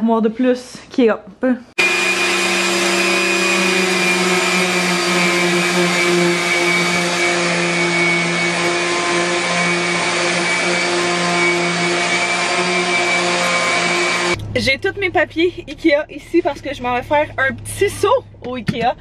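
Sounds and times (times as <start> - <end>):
electric sander running: 1.8 - 14.4.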